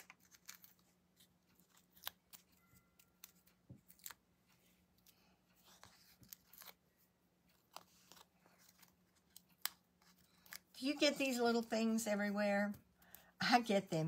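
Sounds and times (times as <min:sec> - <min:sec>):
backing paper peeling rustle: 0:00.0 - 0:02.6, 0:03.2 - 0:11.0.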